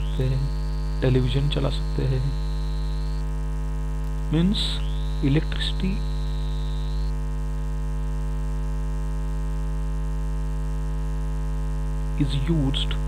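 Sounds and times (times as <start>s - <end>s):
thin high steady tone: 0.0s - 3.3s, 4.3s - 7.2s
electrical mains hum: 0.0s - 13.0s.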